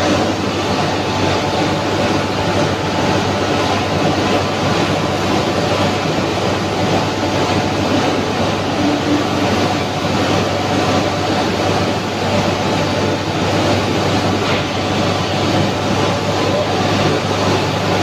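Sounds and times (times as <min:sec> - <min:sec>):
induction furnace hum: 0:00.0 - 0:18.0.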